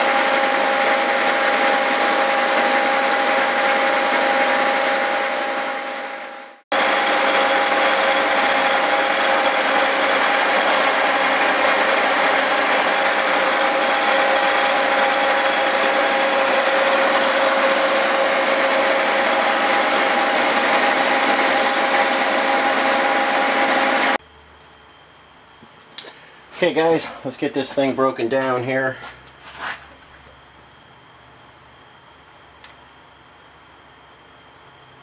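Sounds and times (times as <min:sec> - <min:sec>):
milling machine cutting steel: 0:00.0 - 0:24.2.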